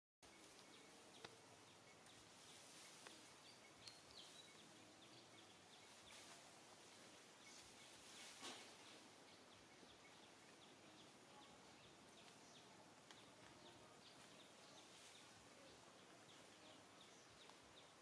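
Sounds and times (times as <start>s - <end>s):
faint high chirps: 0.2s - 18.0s
brief rustle: 7.6s - 9.0s.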